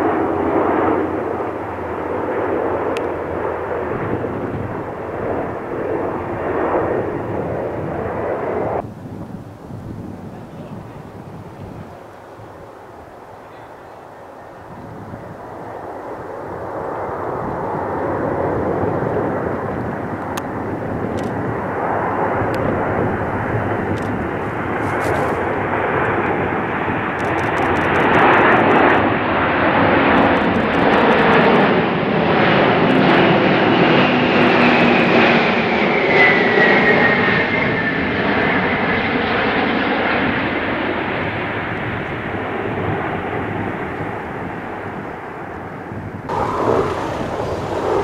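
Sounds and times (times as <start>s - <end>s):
jet aircraft passing overhead: 0.0s - 48.0s
whining engine tones: 46.3s - 48.0s.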